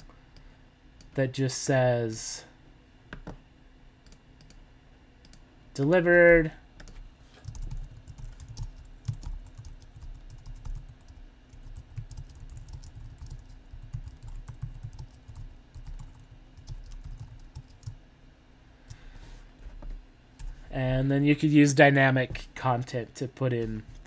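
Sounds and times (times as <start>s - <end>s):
computer keyboard typing: 6.8s - 18.0s.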